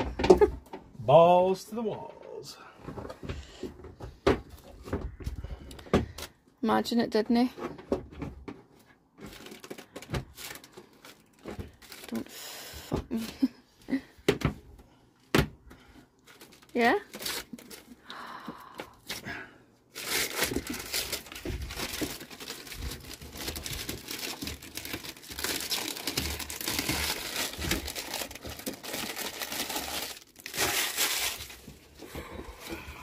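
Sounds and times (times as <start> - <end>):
plastic wrapping crinkling: 9.2 - 12.6, 16.2 - 18.0, 19.9 - 32.8.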